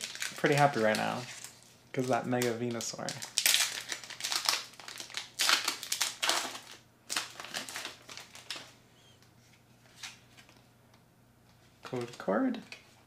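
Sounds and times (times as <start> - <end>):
foil wrapper crinkling: 0.0 - 8.8.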